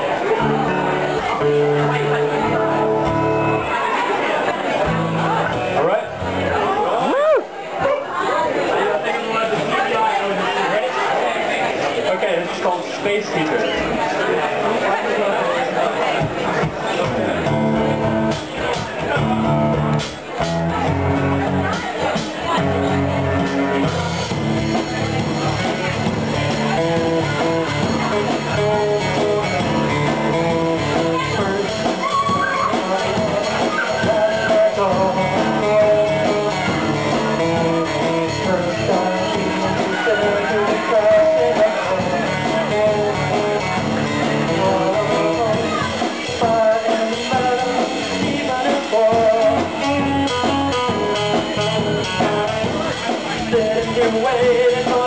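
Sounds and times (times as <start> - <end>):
acoustic guitar strummed: 0.0 - 7.0, 16.2 - 55.0
electric guitar: 0.0 - 7.5, 16.2 - 55.0
drums: 0.0 - 10.6, 12.4 - 55.0
man singing: 26.5 - 55.0.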